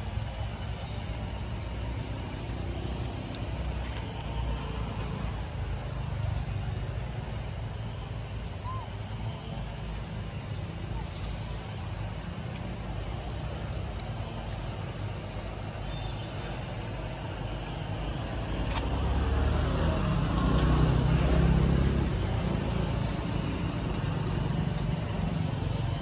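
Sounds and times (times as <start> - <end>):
low rumble of traffic: 0.0 - 26.0
motor vehicle passing: 17.4 - 26.0.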